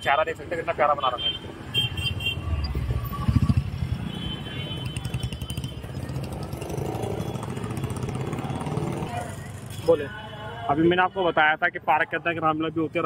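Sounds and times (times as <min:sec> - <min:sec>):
street traffic: 0:00.0 - 0:13.0
motorcycle engines running: 0:02.7 - 0:09.8.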